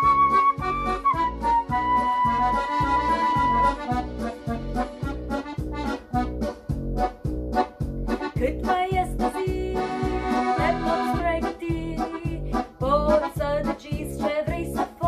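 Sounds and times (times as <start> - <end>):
accordion playing: 0.0 - 15.0
bass and chord accompaniment: 0.0 - 15.0
electronic keyboard: 0.0 - 15.0
woman singing: 8.3 - 15.0.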